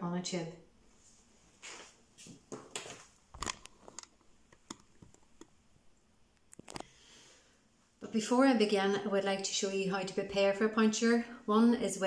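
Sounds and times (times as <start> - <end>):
soft rustling: 0.8 - 5.6
small clicks and taps: 2.7 - 5.6, 6.3 - 6.9.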